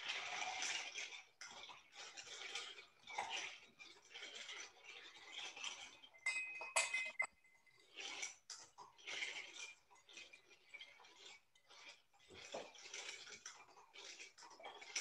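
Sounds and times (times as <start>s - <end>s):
ice cubes rattling in a glass: 0.0s - 15.0s
spoon clinking against glass: 6.2s - 7.6s.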